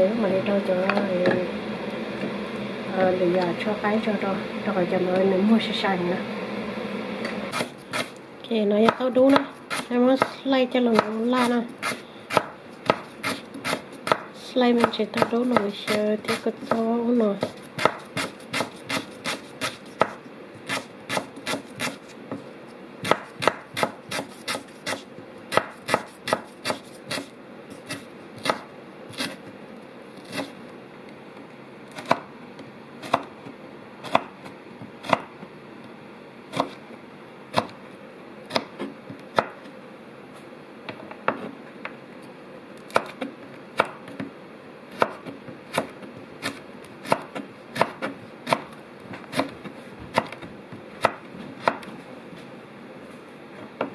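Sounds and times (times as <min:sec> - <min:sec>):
knife chopping on cutting board: 0:07.5 - 0:08.2, 0:08.8 - 0:22.4, 0:23.0 - 0:29.5, 0:32.0 - 0:32.3, 0:33.0 - 0:33.3, 0:34.1 - 0:35.3, 0:36.5 - 0:36.8, 0:38.5 - 0:39.6, 0:42.9 - 0:44.3, 0:44.9 - 0:51.9.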